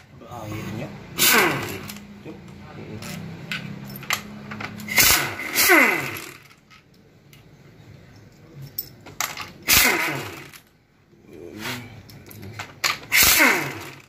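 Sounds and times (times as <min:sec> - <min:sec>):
impact wrench bursts: 0:01.1 - 0:02.2, 0:03.0 - 0:06.7, 0:09.5 - 0:10.7, 0:12.8 - 0:14.0.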